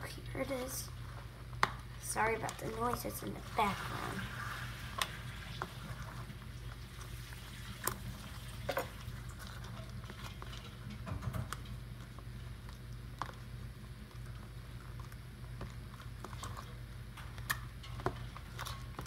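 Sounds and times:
low background hum: 0:00.0 - 0:19.0.

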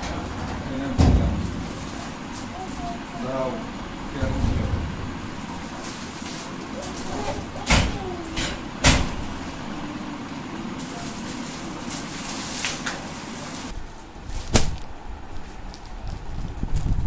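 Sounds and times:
metal cabinet door clanking: 0:00.0 - 0:11.8
plastic wrapping crinkling: 0:09.5 - 0:16.9.

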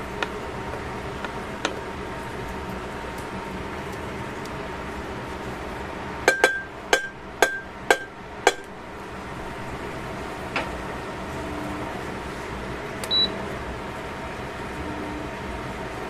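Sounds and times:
wooden spatula tapping metal pan: 0:06.3 - 0:08.7.

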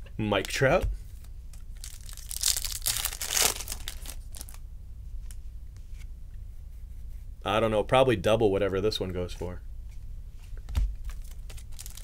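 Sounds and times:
plastic packaging crinkling: 0:01.6 - 0:04.6, 0:11.0 - 0:12.0.

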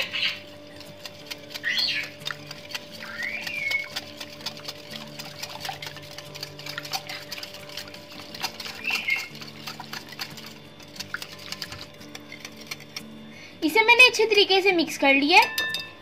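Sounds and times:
fork whisking in glass bowl: 0:00.0 - 0:13.2.

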